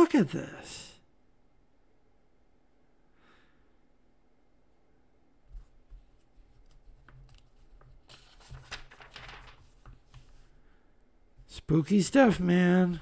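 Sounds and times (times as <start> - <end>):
pages rustling and thumping: 5.6 - 10.5.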